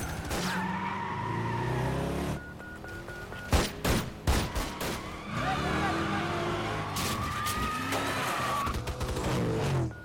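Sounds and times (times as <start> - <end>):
quick electronic beeps: 2.3 - 3.7.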